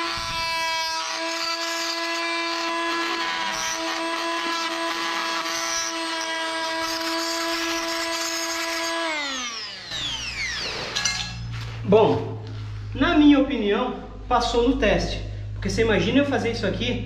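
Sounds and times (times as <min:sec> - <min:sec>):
blade rasping in wood: 0:00.0 - 0:09.8
oscillating multi-tool buzzing: 0:00.0 - 0:11.5.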